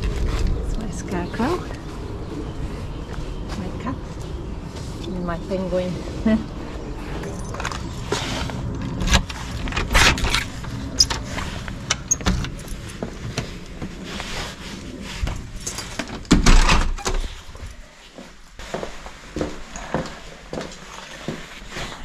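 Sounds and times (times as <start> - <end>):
footsteps: 17.2 - 22.0.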